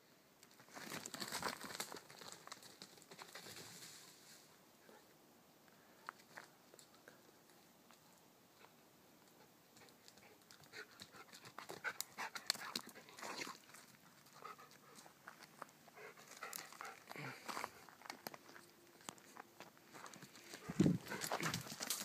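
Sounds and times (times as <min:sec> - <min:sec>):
dog panting: 0:14.2 - 0:15.2, 0:15.9 - 0:17.3, 0:20.6 - 0:22.0.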